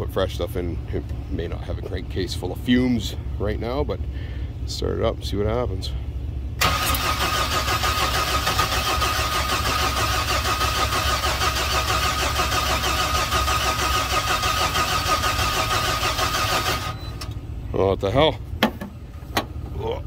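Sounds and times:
forklift engine running with whine: 0:05.9 - 0:17.8.

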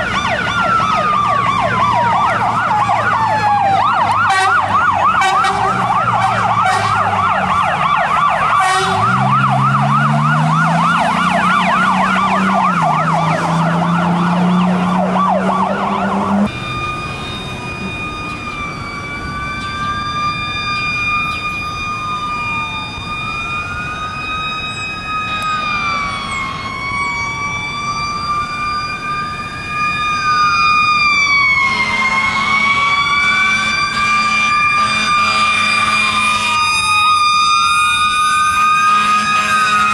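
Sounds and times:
electronic siren yelp: 0:00.0 - 0:39.9
low fire engine siren tone: 0:00.0 - 0:39.9
siren wail rising and falling: 0:00.0 - 0:39.9
steady high siren tone: 0:00.0 - 0:39.9
engine revving: 0:00.3 - 0:18.6.

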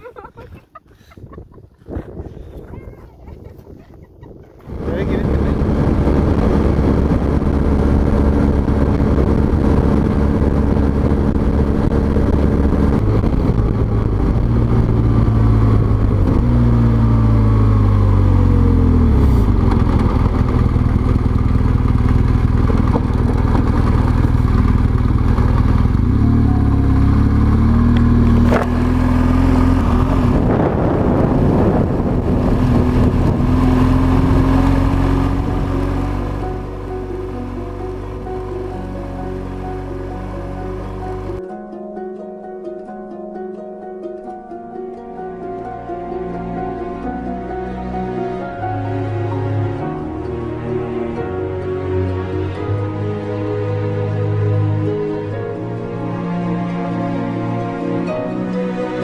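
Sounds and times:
motorcycle engine running: 0:04.6 - 0:41.4.

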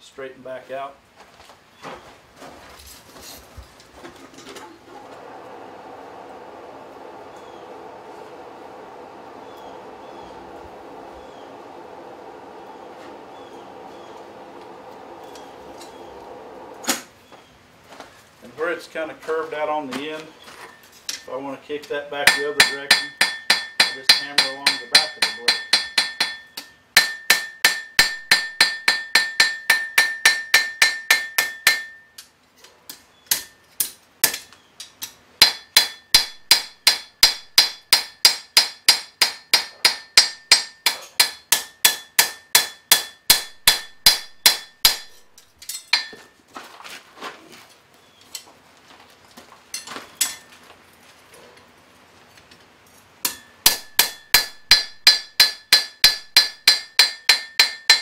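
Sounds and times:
anvil ringing: 0:22.3 - 0:32.2, 0:35.4 - 0:46.3, 0:53.3 - 0:58.0
hammer striking anvil: 0:22.3 - 0:32.2, 0:33.3 - 0:34.4, 0:35.4 - 0:45.2, 0:45.8 - 0:46.3, 0:53.2 - 0:58.0.

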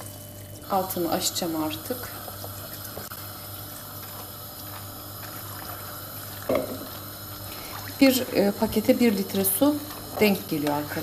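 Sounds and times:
water pouring into a pot: 0:00.0 - 0:11.0.

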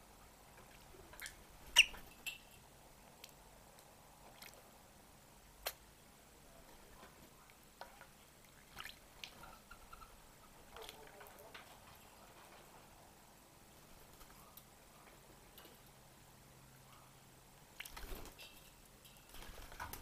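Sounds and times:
bird splashing in water: 0:07.9 - 0:10.1, 0:17.8 - 0:18.2.

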